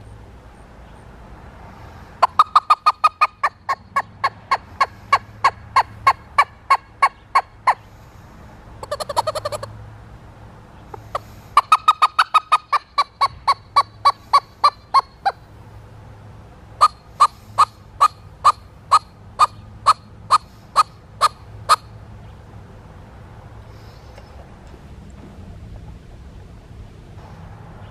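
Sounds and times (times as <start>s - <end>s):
squirrel call barks: 2.2s - 8.0s, 8.8s - 9.8s, 10.8s - 15.5s, 16.8s - 22.4s.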